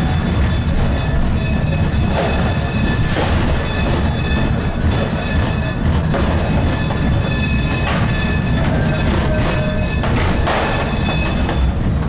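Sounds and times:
steady high tones: 0.0s - 11.8s
light-rail car low rumble: 0.0s - 12.0s.

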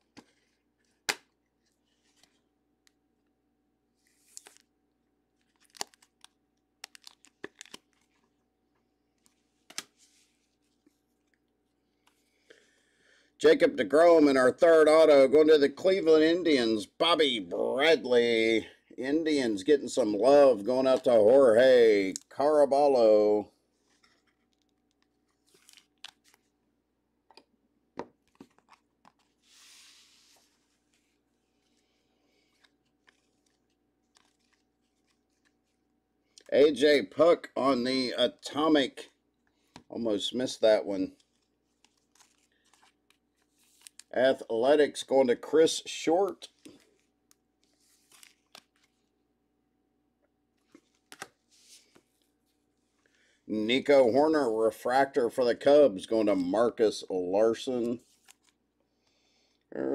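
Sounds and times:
crinkly plastic rustles: 5.4s - 8.4s, 23.8s - 26.6s, 32.5s - 35.8s, 41.1s - 44.1s, 46.3s - 49.1s
soft rustle: 9.2s - 11.4s, 28.3s - 35.8s, 46.6s - 49.1s, 50.6s - 53.0s.

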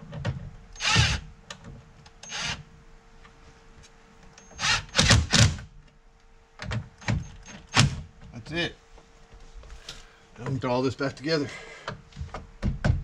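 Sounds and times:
cordless drill driving screws: 0.8s - 1.2s, 2.2s - 2.6s, 4.6s - 5.6s.

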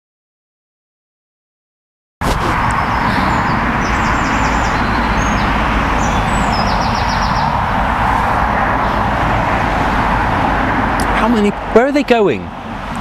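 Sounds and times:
road traffic going by: 2.2s - 13.0s
songbird singing high trills: 2.8s - 7.6s.

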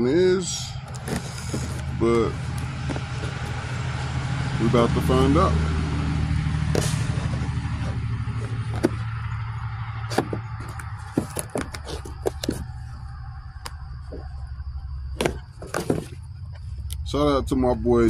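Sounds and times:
steady low hum: 0.0s - 18.0s
cardboard box clicks and crackles: 0.8s - 3.6s, 6.7s - 9.2s, 10.0s - 12.9s.

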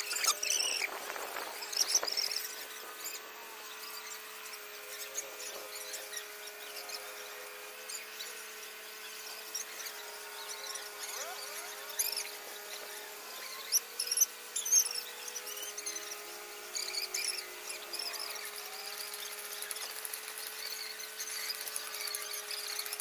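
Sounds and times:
high-pitched chirps and squeaks: 0.0s - 0.9s
steady hum: 0.0s - 23.0s.

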